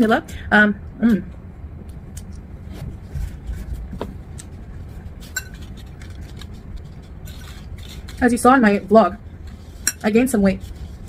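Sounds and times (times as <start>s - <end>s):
fork clinking and scraping bowl: 5.2s - 6.1s, 9.5s - 10.1s.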